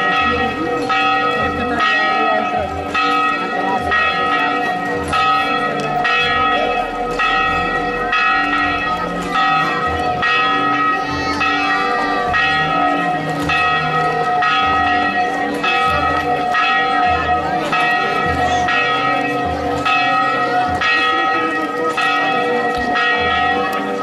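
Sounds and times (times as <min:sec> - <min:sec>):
church bells ringing: 0:00.0 - 0:24.0.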